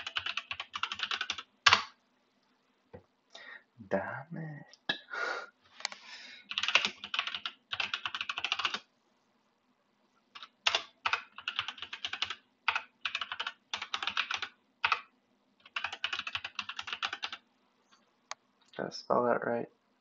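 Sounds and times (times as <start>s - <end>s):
computer keyboard typing: 0.0s - 1.9s, 6.5s - 8.9s, 10.4s - 17.4s.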